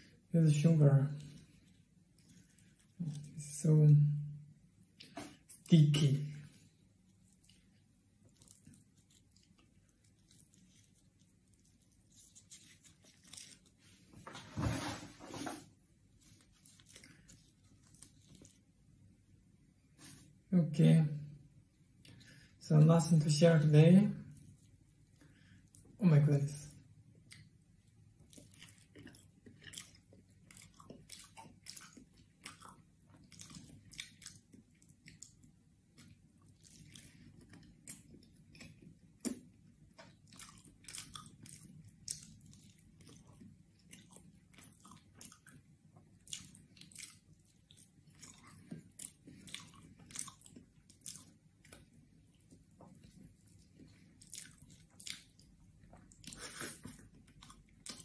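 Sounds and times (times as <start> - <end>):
person chewing with wet mouth clicks: 6.6 - 13.6, 27.1 - 58.0.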